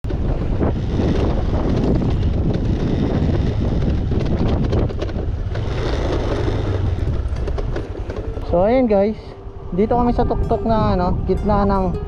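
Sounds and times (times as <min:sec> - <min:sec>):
wind buffeting microphone: 0:00.0 - 0:12.0
scooter engine under load: 0:00.1 - 0:09.3
bike clattering over stones: 0:04.1 - 0:08.8.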